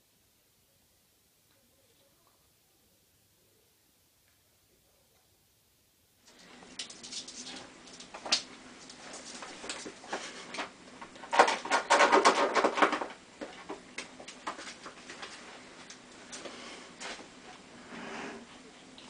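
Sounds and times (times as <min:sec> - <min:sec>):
ferret scratching and rustling: 0:06.3 - 0:19.0.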